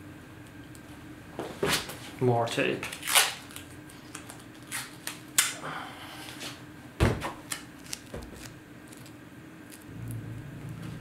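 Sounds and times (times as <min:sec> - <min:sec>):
duct tape rustling and clicking: 0:02.8 - 0:05.6, 0:07.4 - 0:09.9.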